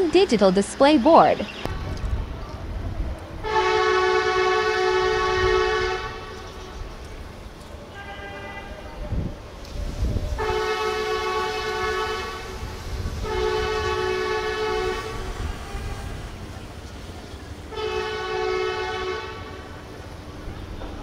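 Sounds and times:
locomotive horn blasts: 0:03.4 - 0:06.5, 0:07.9 - 0:09.0, 0:10.4 - 0:16.4, 0:17.7 - 0:19.8.

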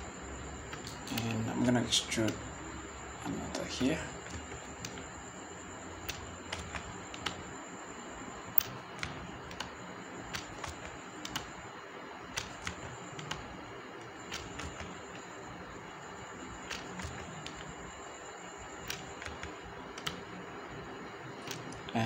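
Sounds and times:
keyboard key presses: 0:00.7 - 0:02.5, 0:03.4 - 0:05.1, 0:06.0 - 0:07.5, 0:08.6 - 0:11.5, 0:12.3 - 0:13.5, 0:14.2 - 0:15.3, 0:16.6 - 0:17.8, 0:18.8 - 0:20.2, 0:21.4 - 0:21.9.

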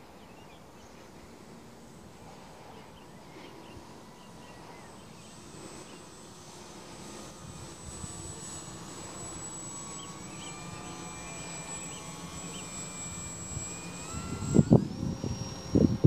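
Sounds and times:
model plane motor whining: 0:00.6 - 0:16.0.

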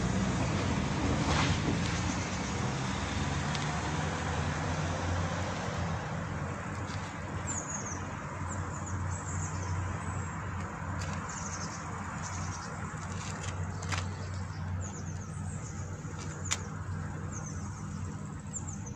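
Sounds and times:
low traffic hum: 0:00.0 - 0:18.9.

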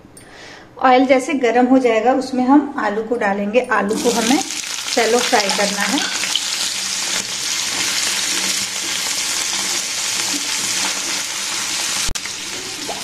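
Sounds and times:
potatoes sizzling in oil: 0:03.9 - 0:13.0.

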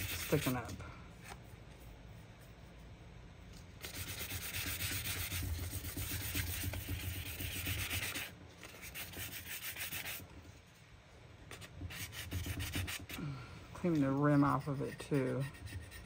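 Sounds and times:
sandpaper rubbing on epoxy: 0:00.0 - 0:00.7, 0:03.8 - 0:10.2, 0:11.5 - 0:13.2, 0:13.9 - 0:16.0.

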